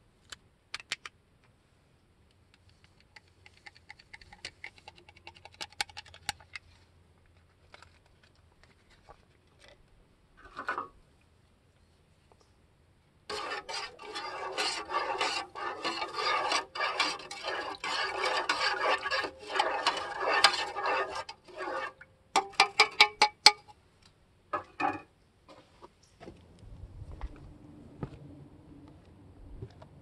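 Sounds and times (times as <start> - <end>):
scraping and rustling: 13.3 - 22.0.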